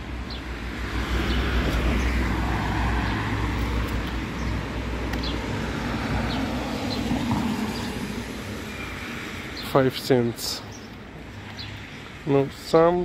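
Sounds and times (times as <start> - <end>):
car passing on wet road: 0.8 - 4.1, 4.8 - 9.5.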